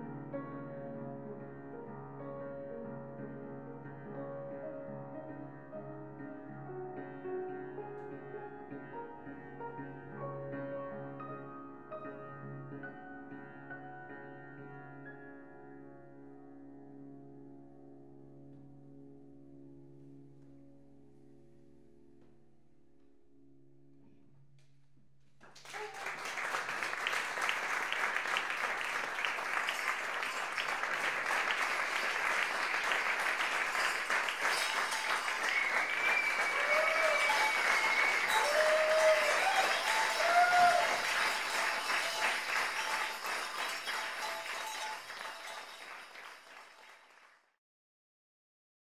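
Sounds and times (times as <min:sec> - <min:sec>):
audience clapping: 0:25.4 - 0:47.5.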